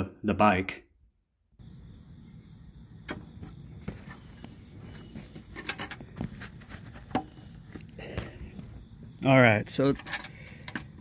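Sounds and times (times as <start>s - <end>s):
lock clicking and key rattling: 9.8s - 11.0s.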